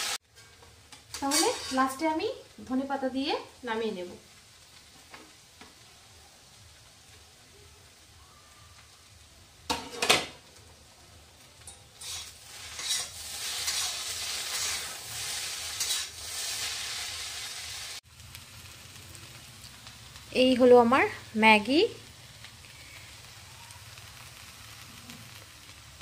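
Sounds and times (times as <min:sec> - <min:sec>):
food sizzling in a pan: 0:00.0 - 0:26.0.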